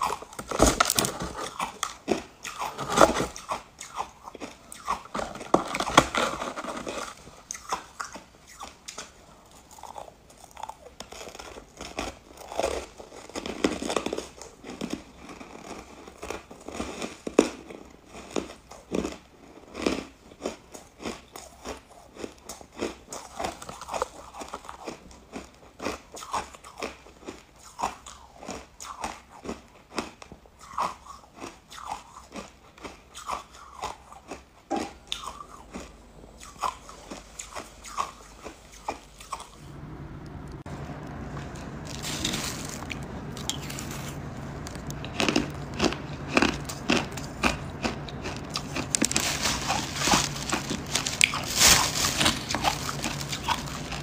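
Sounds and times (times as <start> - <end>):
crunching ice chunks: 0.0 - 9.1, 41.8 - 54.0.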